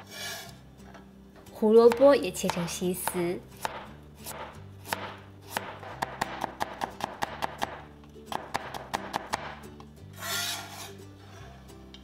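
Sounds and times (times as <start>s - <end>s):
cleaver chopping on cutting board: 1.9s - 9.6s.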